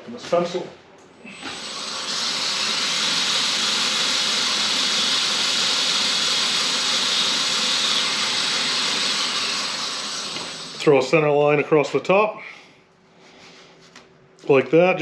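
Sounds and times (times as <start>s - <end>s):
abrasive wheel grinding pencil: 1.5s - 10.9s.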